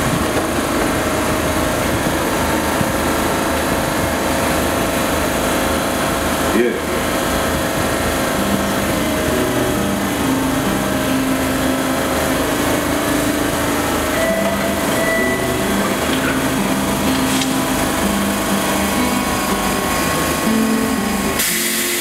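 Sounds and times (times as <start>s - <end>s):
low hum shifting pitch: 0.0s - 22.0s
train mechanical drone: 0.0s - 22.0s
train doors sliding shut: 13.2s - 22.0s.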